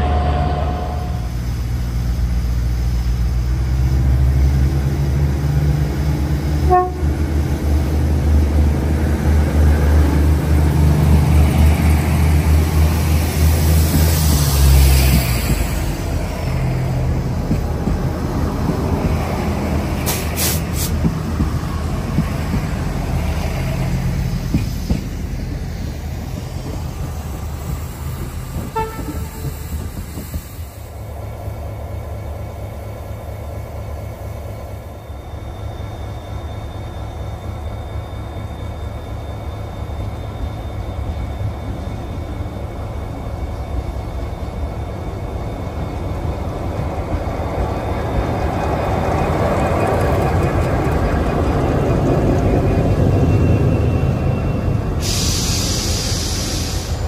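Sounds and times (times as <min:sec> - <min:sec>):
locomotive engines rumbling: 0:00.0 - 0:57.0
train passing: 0:00.0 - 0:57.0.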